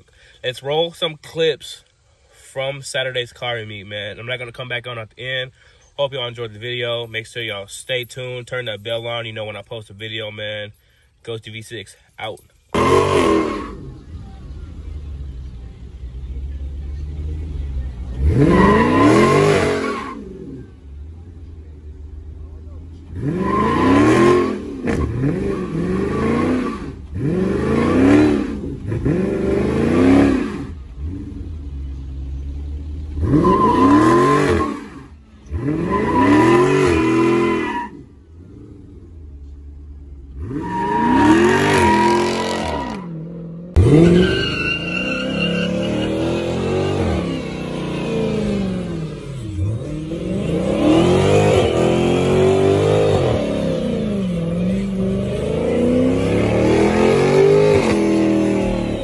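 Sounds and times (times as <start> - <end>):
car engine revving: 12.7 - 59.0.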